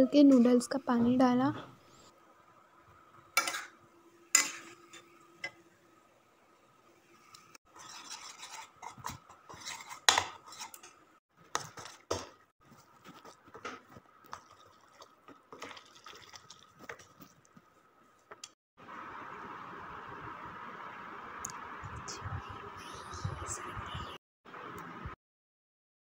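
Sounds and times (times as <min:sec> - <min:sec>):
utensil scraping bowl: 0:07.7 - 0:12.2.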